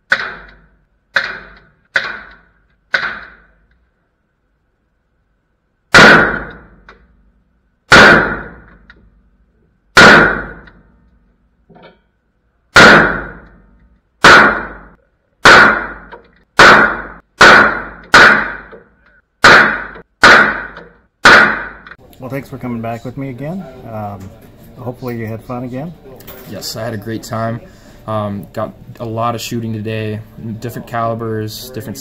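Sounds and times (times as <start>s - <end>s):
rifle shots echoing: 5.9s - 6.8s, 7.9s - 8.8s, 10.0s - 10.7s, 12.8s - 13.6s, 14.2s - 18.8s, 19.4s - 22.0s.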